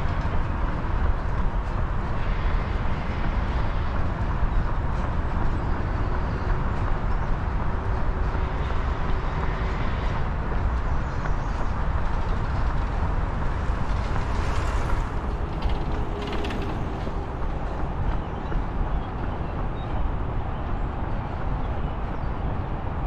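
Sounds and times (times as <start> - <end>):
road traffic rumble: 0.0 - 23.0.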